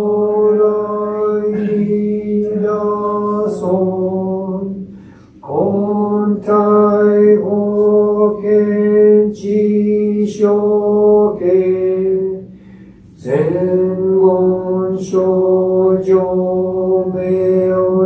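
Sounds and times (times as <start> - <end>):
man chanting in monotone: 0.0 - 18.0.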